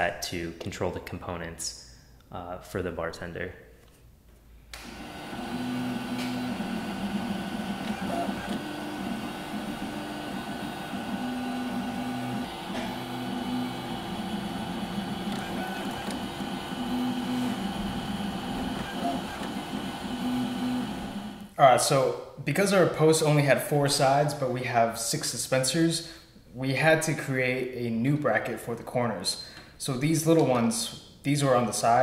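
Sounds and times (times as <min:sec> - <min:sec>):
stepper motors whining: 0:04.8 - 0:21.5.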